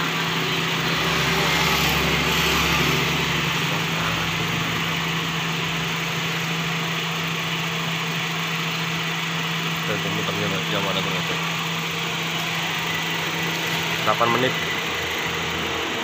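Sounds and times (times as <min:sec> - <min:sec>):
car engine idling: 0:00.0 - 0:16.0
vehicle passing: 0:00.7 - 0:06.4.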